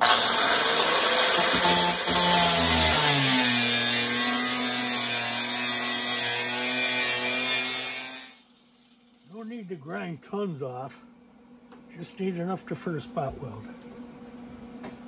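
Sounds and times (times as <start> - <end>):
angle grinder grinding metal: 0.0 - 9.4.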